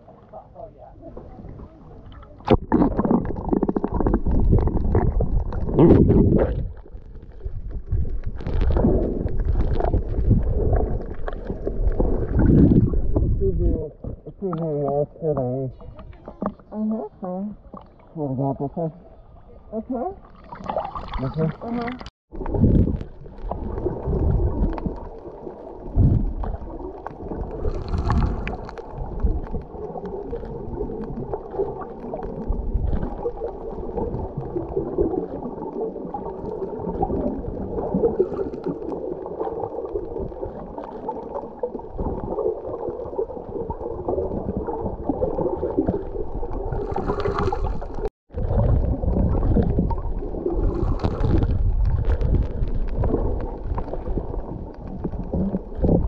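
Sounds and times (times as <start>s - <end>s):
underwater rumble: 0.0s - 56.0s
water gurgling: 0.0s - 56.0s
bubbly hisses: 25.8s - 29.2s, 41.6s - 54.4s.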